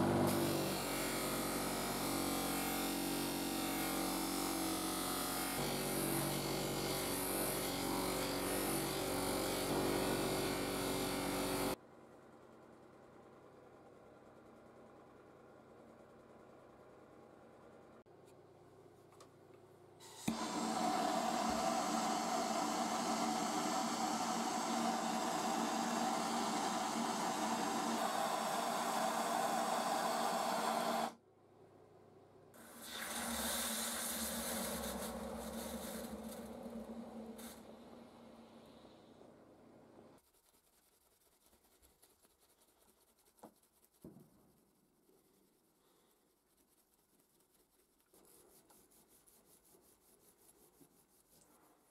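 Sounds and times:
bench grinder motor hum: 0:00.0 - 0:11.8, 0:20.0 - 0:31.2
blowtorch flame hissing: 0:20.1 - 0:31.2, 0:32.6 - 0:37.7.

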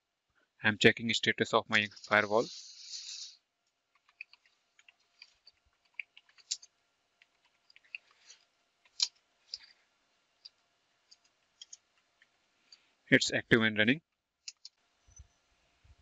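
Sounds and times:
computer keyboard typing: 0:04.0 - 0:06.6.

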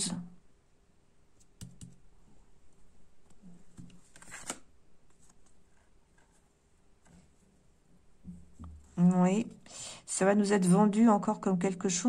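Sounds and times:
paper cards rustling: 0:03.3 - 0:07.2
card scraping on card: 0:04.1 - 0:04.6.

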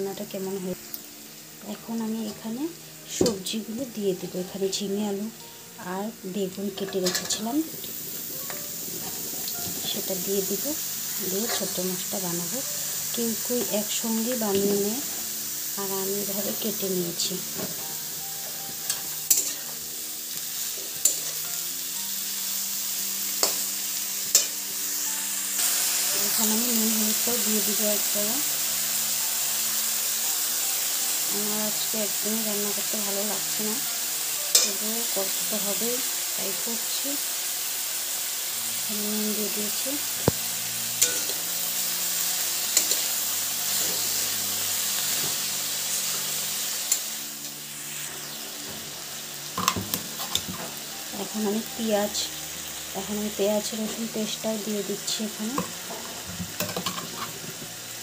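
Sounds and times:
vegetables sizzling in oil: 0:00.0 - 0:58.0
metal spatula scraping pan: 0:18.8 - 0:19.7, 0:41.0 - 0:41.4
spatula clinking on pan: 0:41.0 - 0:41.4.

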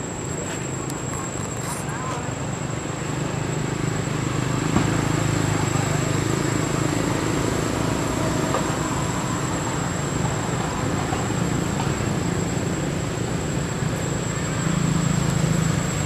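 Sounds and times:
background rumble and hiss: 0:00.0 - 0:04.0.

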